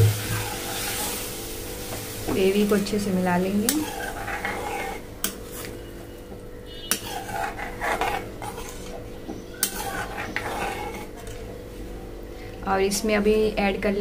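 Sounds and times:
spoon stirring and scraping gravy: 0.2s - 1.2s, 2.8s - 11.8s.

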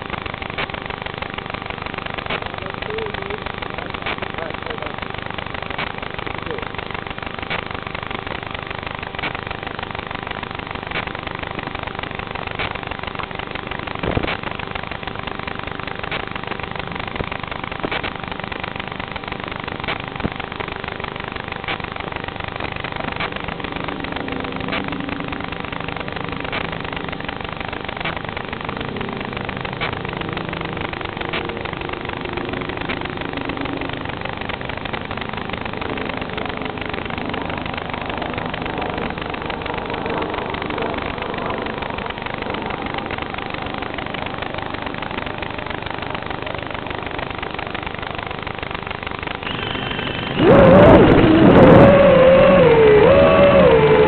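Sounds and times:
static hiss with crackles: 0.0s - 54.0s
faint voices: 2.4s - 5.0s.

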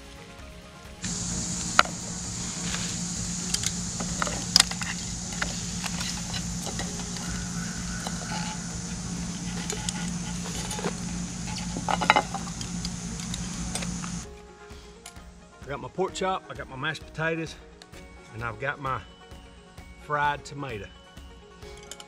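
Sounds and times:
high hiss: 1.0s - 14.2s
low hum: 1.0s - 14.2s.

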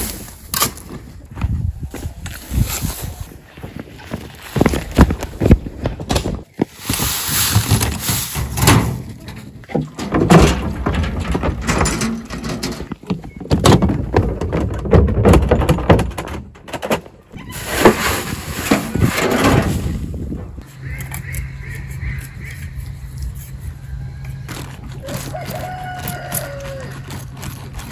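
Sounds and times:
metal wheelbarrow rattling: 6.9s - 20.6s.

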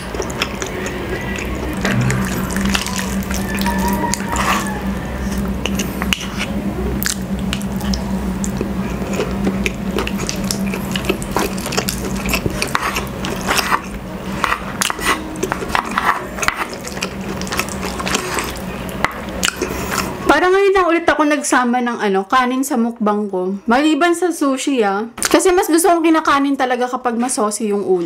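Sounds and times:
wet chewing: 0.0s - 20.2s.

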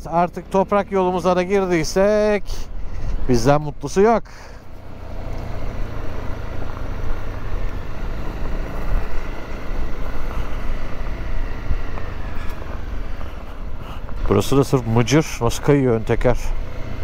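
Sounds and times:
tyres on loose gravel: 0.1s - 17.0s
motorcycle engine running: 4.5s - 17.0s.

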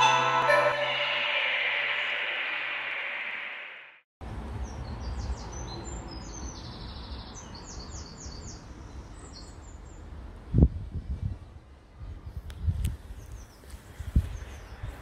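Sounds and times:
small birds chirping: 4.6s - 10.1s.

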